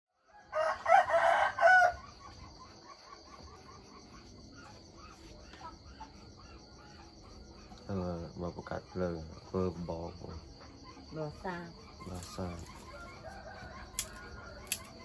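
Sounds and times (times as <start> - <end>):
rooster crowing: 0.2 - 2.2, 12.7 - 15.0
high insect trill: 0.3 - 15.0.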